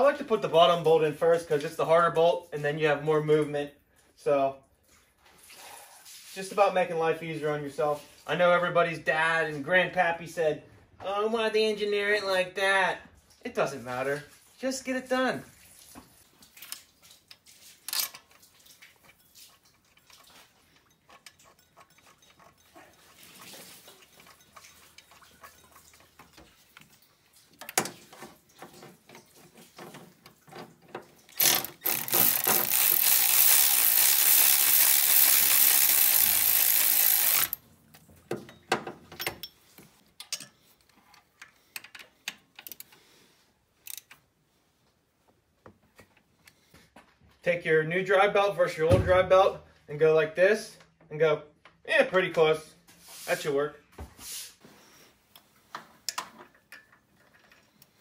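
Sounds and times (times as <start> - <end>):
hand ratchet clicking: 31.3 - 37.6, 43.8 - 44.2.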